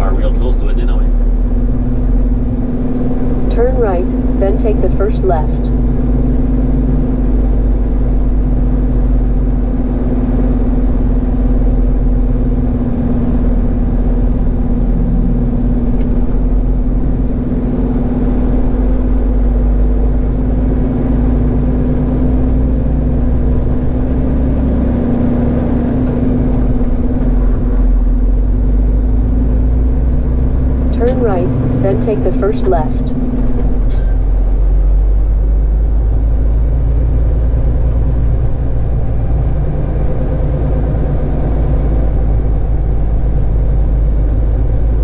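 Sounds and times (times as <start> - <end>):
truck diesel engine hum: 0.0 - 45.0.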